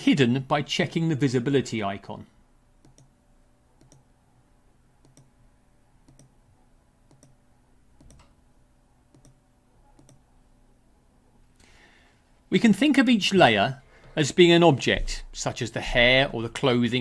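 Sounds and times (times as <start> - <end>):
faint steady hum: 0.0 - 17.0
computer mouse clicks: 2.8 - 3.1, 3.8 - 4.1, 5.0 - 5.3, 6.0 - 6.4, 7.1 - 7.4, 8.0 - 8.4, 9.1 - 10.3.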